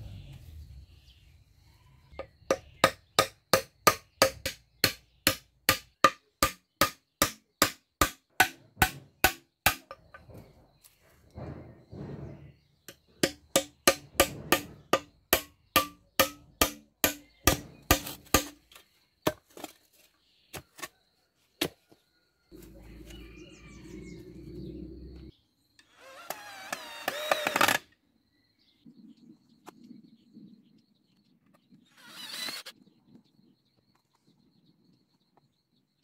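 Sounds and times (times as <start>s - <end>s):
hammer striking: 2.5s - 10.2s, 12.9s - 18.6s
scattered knocks: 11.4s - 18.6s.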